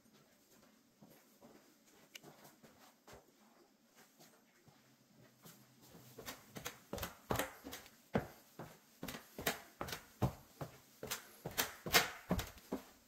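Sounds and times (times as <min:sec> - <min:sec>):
footsteps on wooden stairs: 0:06.2 - 0:13.0.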